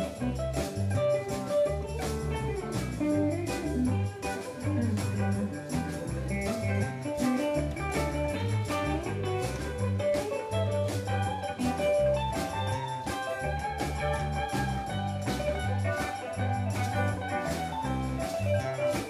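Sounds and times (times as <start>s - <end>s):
bass line: 0.0s - 19.0s
drum kit: 0.0s - 19.0s
electric guitars: 0.0s - 19.0s.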